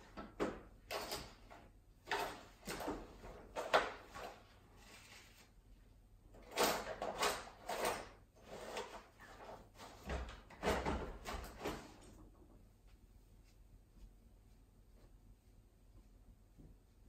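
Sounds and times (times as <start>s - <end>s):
objects scraping and rustling: 8.4s - 10.2s.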